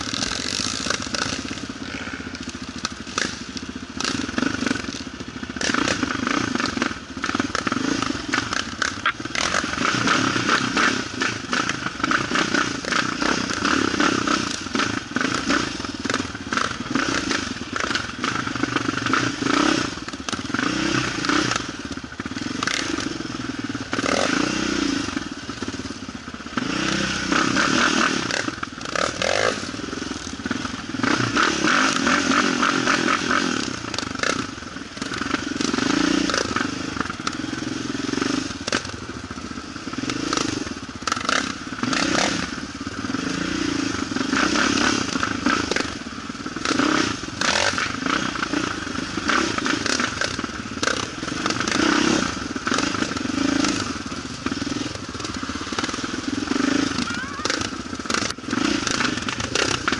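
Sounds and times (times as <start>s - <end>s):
quad engine revving: 0.0s - 59.9s.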